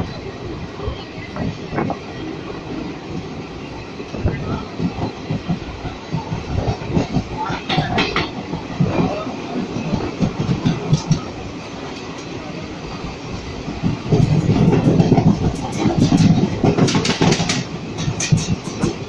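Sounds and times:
train coaches rushing by: 0.0 - 19.0
wheels clattering over rail joints: 4.9 - 9.2, 13.7 - 19.0.

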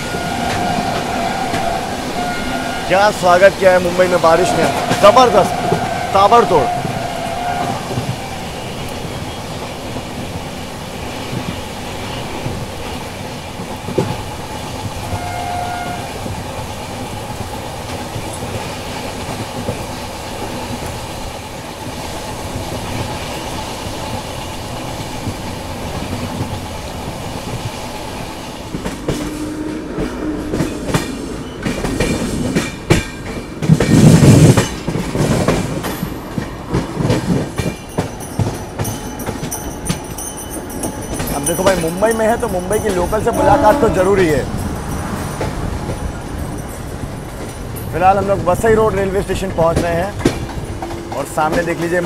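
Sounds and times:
train horn: 0.0 - 8.2, 15.1 - 16.3, 29.0 - 31.2, 42.8 - 44.6
train wheels rumbling on track: 0.0 - 52.0
wheels clattering over rail joints: 0.0 - 52.0.

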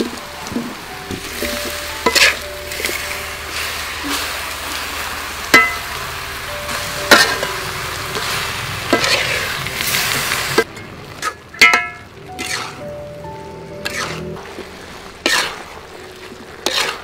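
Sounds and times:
food sizzling in wok: 0.0 - 17.0
metal spatula clinking on wok: 5.6 - 5.8.

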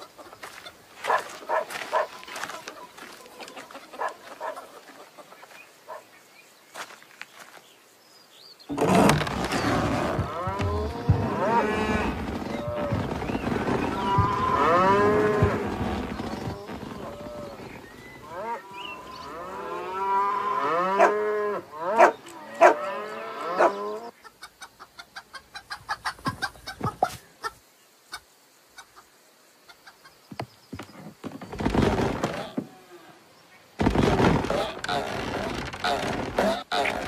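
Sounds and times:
cartoon cows mooing: 9.1 - 24.1.

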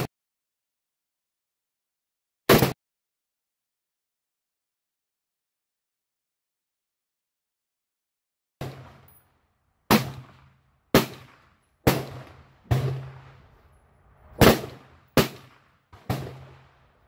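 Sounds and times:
gunshots with echo: 8.6 - 9.1, 9.9 - 17.0.

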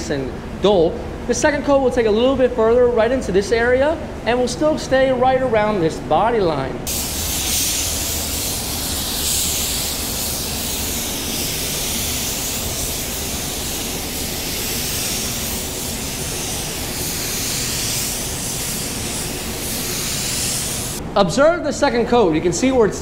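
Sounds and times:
paint spray gun hissing: 6.9 - 21.0.

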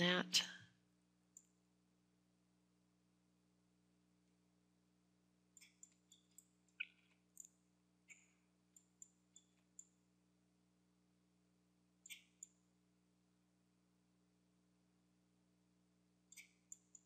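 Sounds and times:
faint steady hum: 0.0 - 17.0
computer mouse clicks: 1.3 - 1.6, 5.5 - 10.0, 12.0 - 12.6, 16.3 - 17.0.

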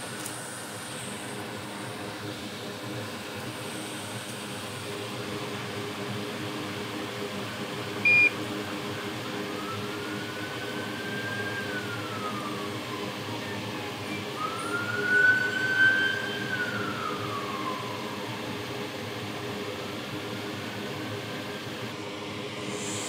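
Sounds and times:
hot air blower hissing: 0.0 - 23.0
siren wailing: 9.2 - 19.0.

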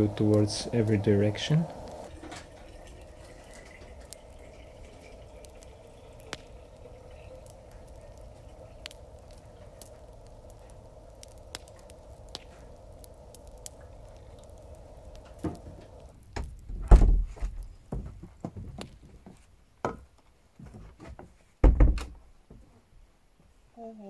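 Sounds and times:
water trickling into thermos: 0.0 - 16.2
boot footsteps on wooden porch: 16.7 - 20.0.

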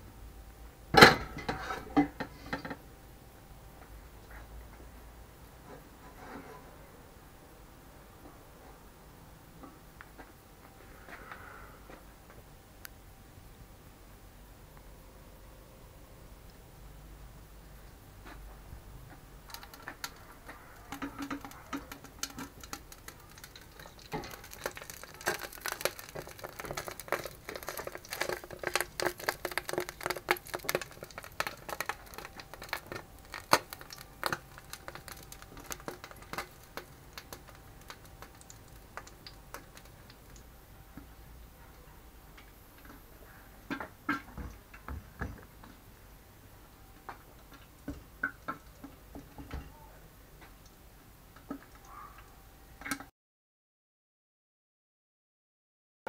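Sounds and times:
filter bowl clicking and scraping: 20.8 - 40.0.

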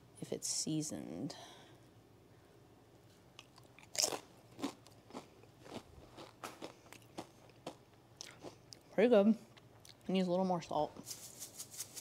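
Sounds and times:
crunching chip being chewed: 3.4 - 8.8.

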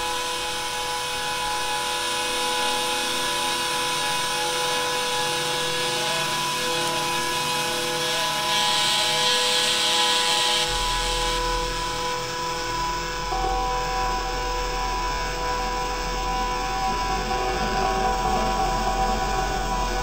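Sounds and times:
steady hum with held tones: 0.0 - 20.0
low tone: 10.6 - 20.0.

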